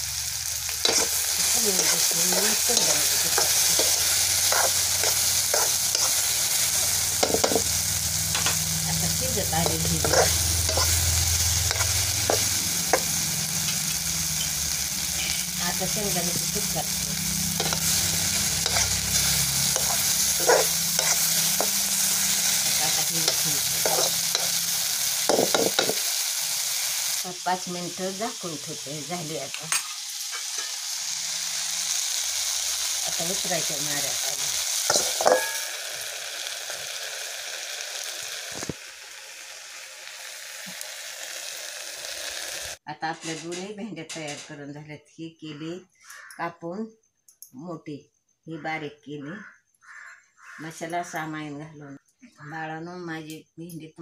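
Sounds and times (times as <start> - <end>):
okra sizzling in pan: 0.0 - 42.8
metal spoon scraping pan: 0.8 - 14.5, 15.2 - 26.1, 29.6 - 31.0, 34.4 - 35.8.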